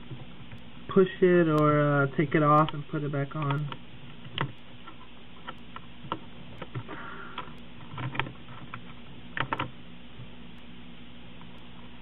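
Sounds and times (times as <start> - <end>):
laptop keys clicking: 3.4 - 9.7.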